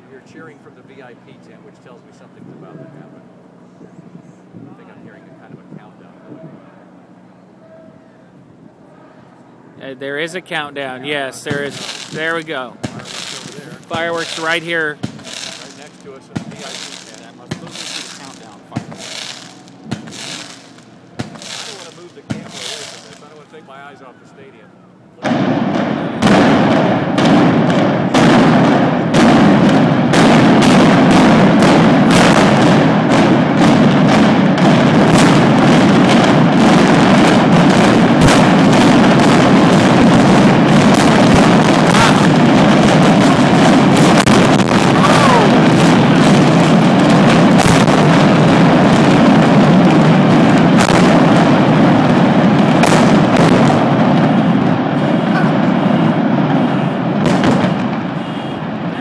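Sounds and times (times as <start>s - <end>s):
demolition explosions: 11.0s - 23.5s, 25.2s - 59.0s
fireworks: 11.0s - 23.7s, 25.2s - 59.0s.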